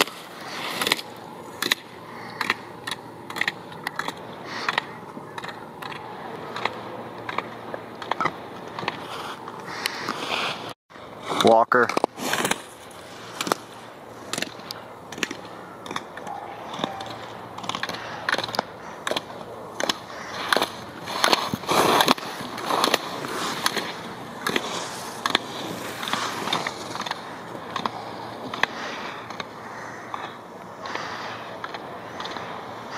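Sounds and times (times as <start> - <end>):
skis scraping on hard snow: 0.0 - 1.1, 8.8 - 14.5, 19.1 - 29.1.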